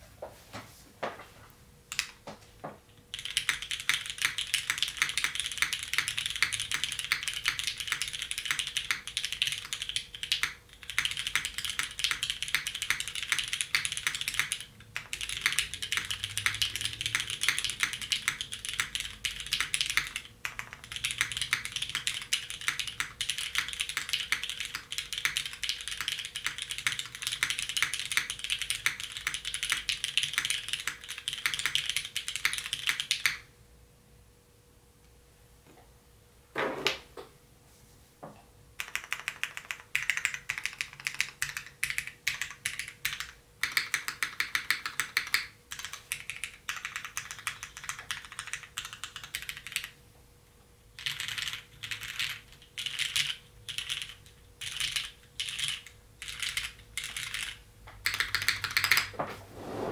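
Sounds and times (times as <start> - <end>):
mechanical keyboard typing: 1.9 - 2.2, 3.1 - 33.5, 38.8 - 50.0, 51.0 - 59.1.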